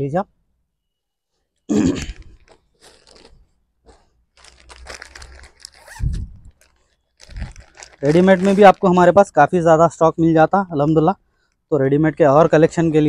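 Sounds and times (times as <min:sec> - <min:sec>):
plastic packet crinkling: 0:02.2 - 0:09.2.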